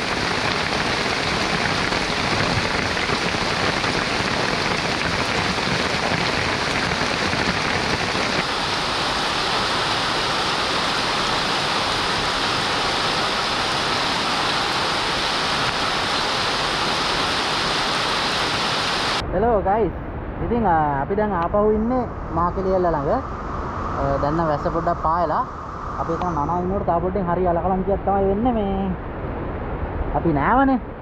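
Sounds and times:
heavy rain falling: 0.0s - 19.2s.

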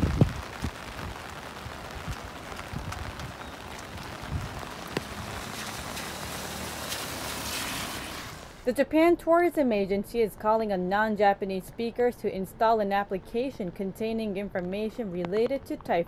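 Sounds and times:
steady rain falling: 0.0s - 8.7s.

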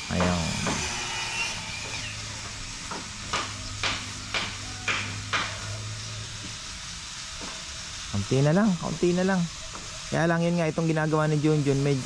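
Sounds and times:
hammer striking wood: 0.1s - 1.0s, 1.8s - 5.6s.

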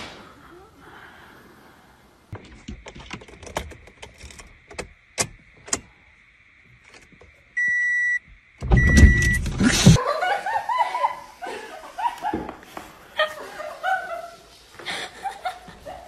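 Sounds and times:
car electronic beep: 7.6s - 9.6s
person laughing: 9.6s - 12.6s, 13.2s - 16.0s.

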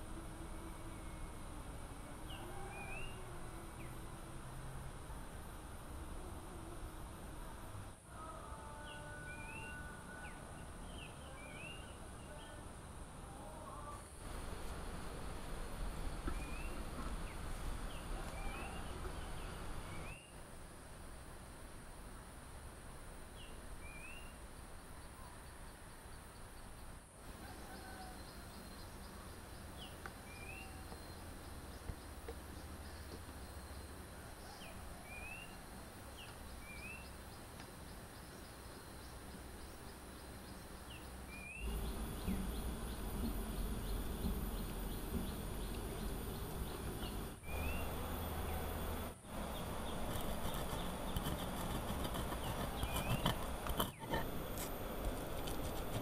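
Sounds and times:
insect drone: 0.0s - 56.0s.

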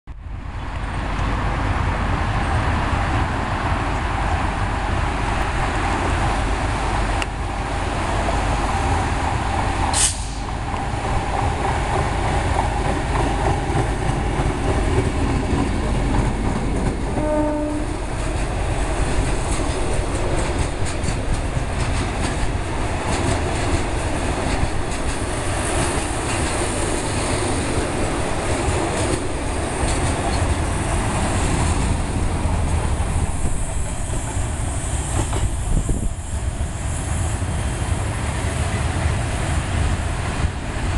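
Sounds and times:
diesel locomotive passing: 0.1s - 40.9s
train horn blast: 17.1s - 18.2s
wheels clicking over rail joints: 18.1s - 33.4s.

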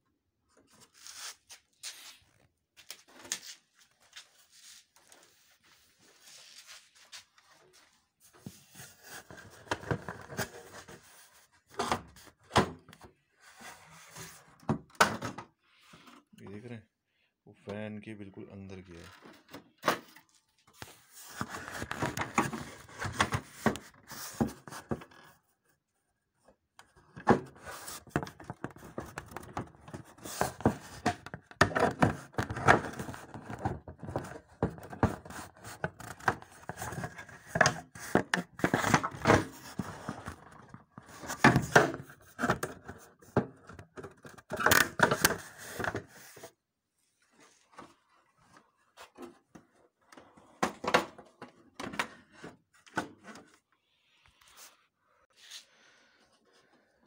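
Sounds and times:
plastic cover knocks and scrapes: 8.4s - 13.1s, 20.8s - 25.2s, 27.0s - 46.4s.

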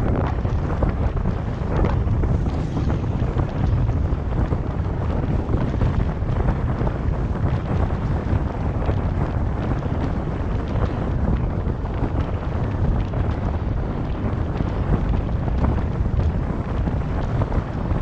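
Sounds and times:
wind buffeting microphone: 0.0s - 18.0s
car road noise: 0.2s - 8.1s.

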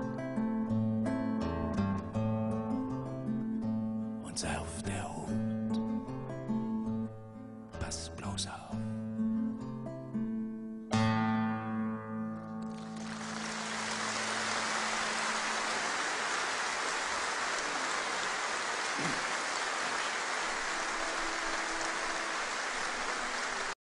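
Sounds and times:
acoustic guitar chord: 8.7s - 15.7s
audience applauding: 12.7s - 23.8s.

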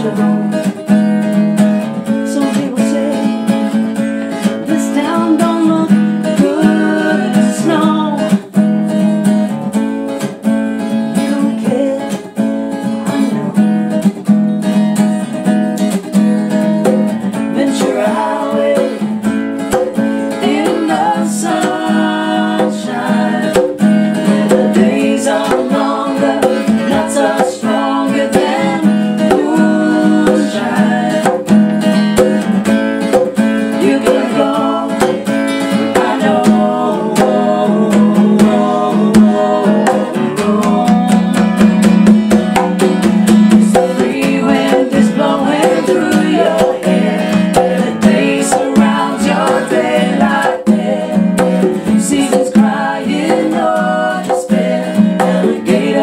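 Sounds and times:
voices singing: 0.0s - 0.8s, 4.4s - 8.5s, 16.8s - 32.4s, 33.1s - 42.1s, 43.0s - 56.0s
acoustic guitar strummed: 0.0s - 56.0s
hand drums: 14.9s - 56.0s.

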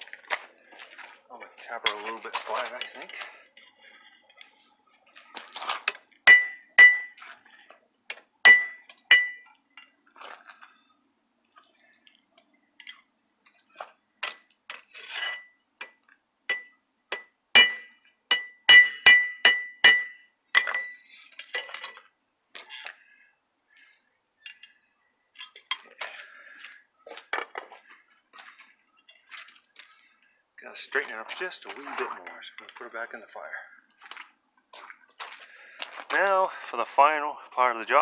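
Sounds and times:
hammer ringing on metal: 6.3s - 7.1s, 8.5s - 9.4s, 17.2s - 21.0s.

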